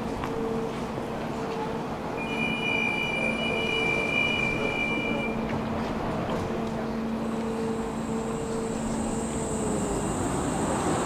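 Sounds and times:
tram wheels squealing on rails: 0.0 - 11.0
thin high whine: 2.2 - 5.4, 7.2 - 11.0.

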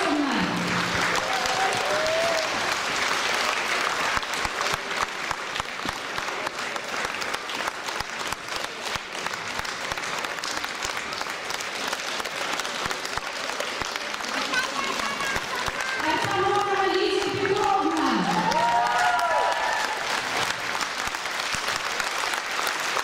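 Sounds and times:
audience applauding: 0.0 - 23.0.

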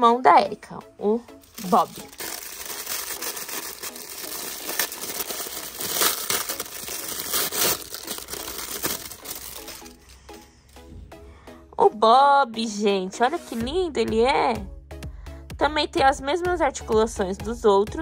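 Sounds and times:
plastic packaging crinkling: 1.4 - 10.2.

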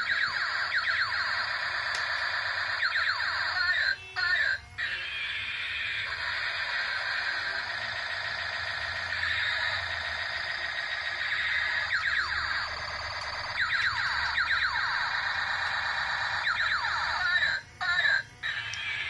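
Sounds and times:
buzzy electronic toy drone: 0.0 - 19.0
siren-like sweeping tones: 0.0 - 19.0.

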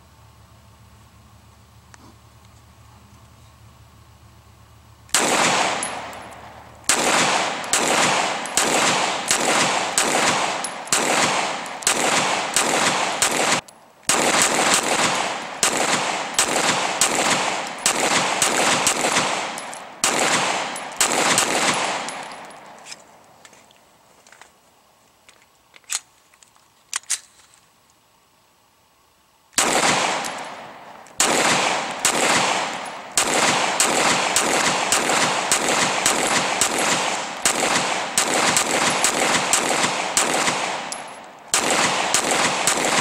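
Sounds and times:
pistol shots with echo: 5.1 - 22.7, 29.6 - 43.0.

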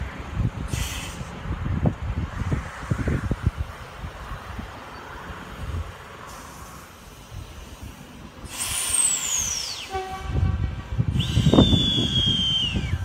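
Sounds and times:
train low rumble: 0.0 - 13.0
train whistling tone falling: 9.4 - 13.0.

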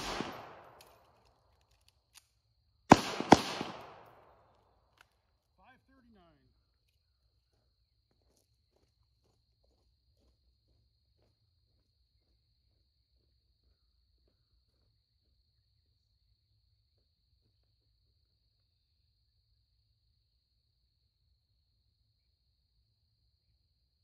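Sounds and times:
insects droning: 0.0 - 1.0.

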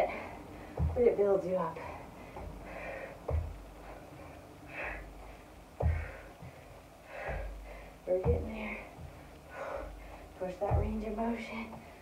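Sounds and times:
dull thumps: 0.0 - 12.0
woman breathing hard: 1.8 - 10.4.

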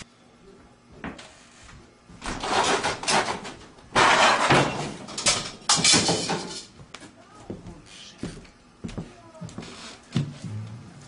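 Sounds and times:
door being worked open: 2.2 - 6.5.

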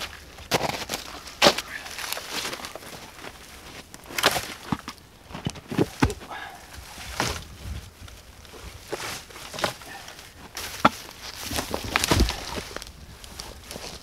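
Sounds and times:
evergreen boughs rustling: 0.0 - 14.0
twigs snapping: 0.0 - 14.0
footsteps crunching on snow: 5.8 - 14.0.

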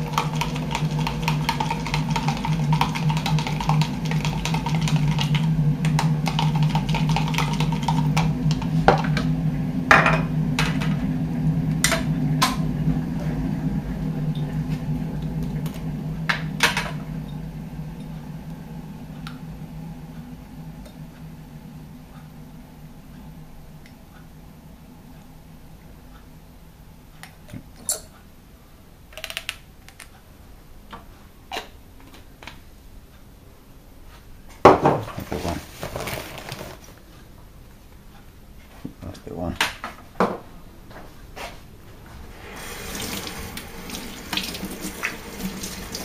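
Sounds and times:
steady low hum: 0.0 - 46.0
knock on worktop: 34.6 - 35.1.

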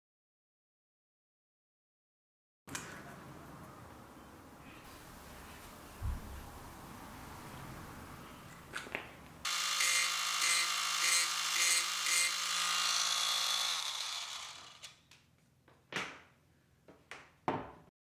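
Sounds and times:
motor spinning down: 9.5 - 15.0
rotary tool grinding wood: 9.5 - 15.0.

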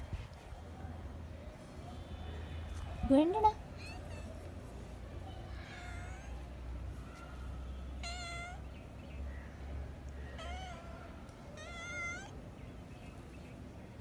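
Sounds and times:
kitten meowing: 10.4 - 10.9, 11.6 - 12.3.

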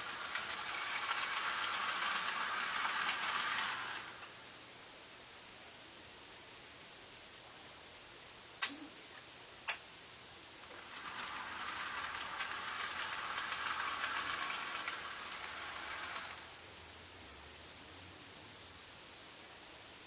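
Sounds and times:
model train running on track: 0.0 - 4.4, 10.6 - 16.6.

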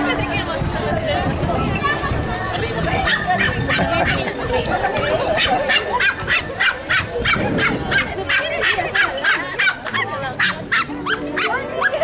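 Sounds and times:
voices murmuring: 0.0 - 12.0
dog barking high-pitched: 3.1 - 4.2, 5.4 - 12.0.

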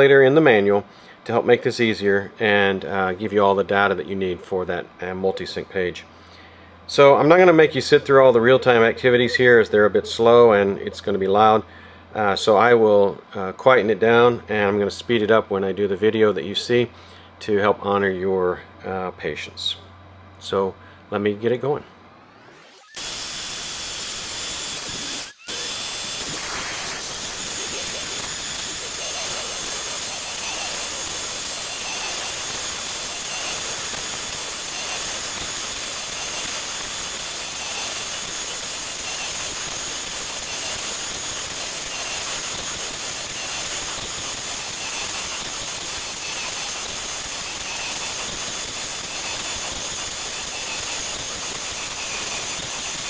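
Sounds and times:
lathe motor hissing and whining: 22.4 - 53.0.

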